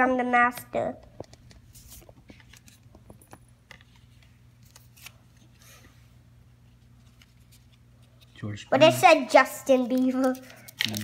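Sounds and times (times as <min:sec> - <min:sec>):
trading cards rustling and tapping: 0:01.0 - 0:05.5, 0:09.7 - 0:11.0.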